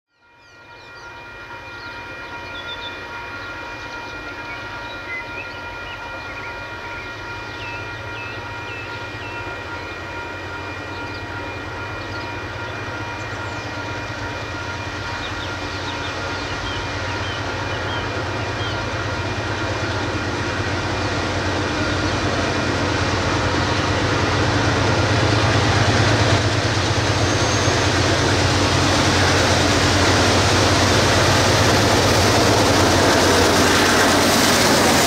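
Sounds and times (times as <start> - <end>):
locomotive engine rumble: 6.7 - 35.0
steady whine: 10.2 - 35.0.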